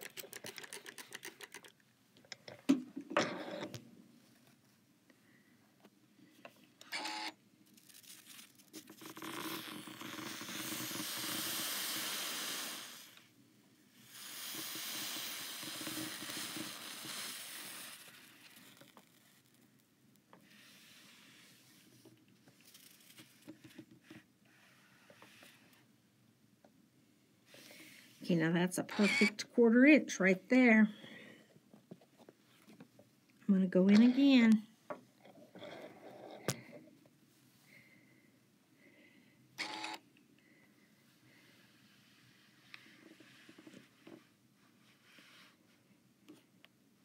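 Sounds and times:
spray bottle squirting water: 9.3 - 13.1, 14.1 - 18.3
steam iron hissing: 10.2 - 13.3, 14.0 - 18.4.

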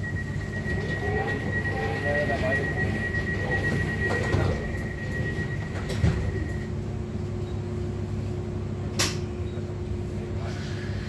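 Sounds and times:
steady high tone: 0.0 - 7.0
train carriage low hum: 0.0 - 11.0
sharp click: 9.0 - 9.3.

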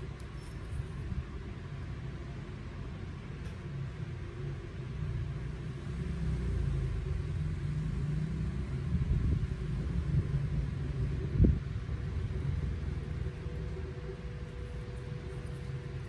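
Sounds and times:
faint hum: 6.6 - 16.0.

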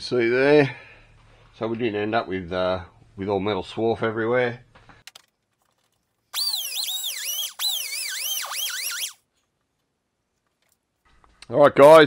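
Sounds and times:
handheld power tool whining: 6.4 - 9.2.

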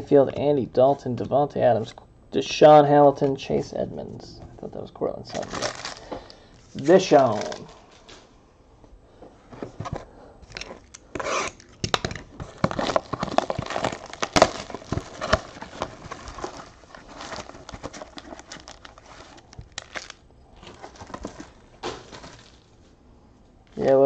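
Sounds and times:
foil packs rustling: 5.3 - 8.1, 9.7 - 22.9
shrink wrap crinkling and tearing: 5.3 - 8.2, 10.5 - 22.8.

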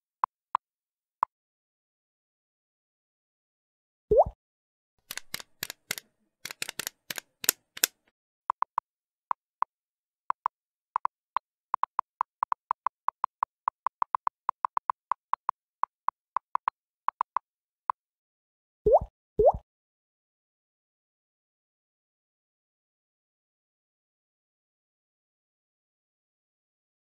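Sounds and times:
typing clicks: 5.1 - 8.0.

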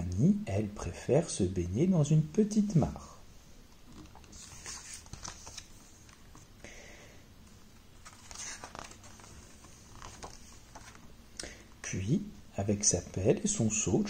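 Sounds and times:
paper pages turning: 4.0 - 6.5, 8.0 - 11.1.

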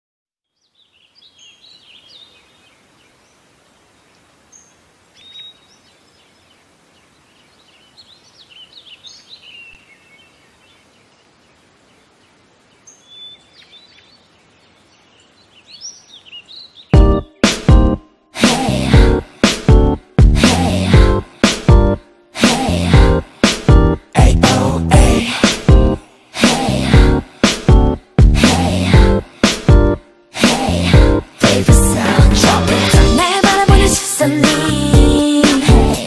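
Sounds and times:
small birds chirping: 0.4 - 17.5
faint steady hiss: 0.5 - 16.9.

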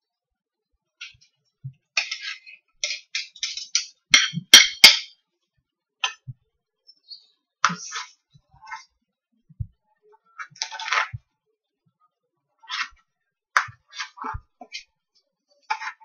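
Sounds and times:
cutlery scraping and clinking: 2.0 - 5.1, 10.4 - 11.2, 13.6 - 14.8, 15.6 - 16.0.

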